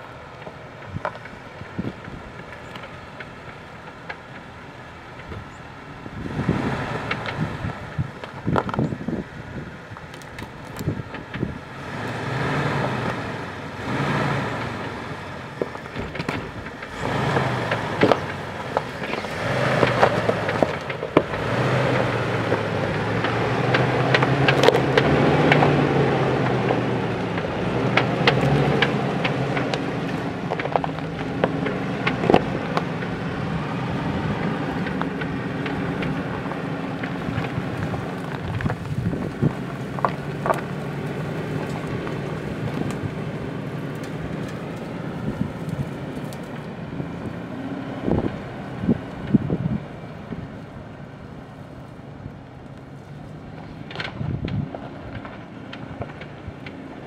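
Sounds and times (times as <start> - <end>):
car engine at low speed: 0.0 - 57.0.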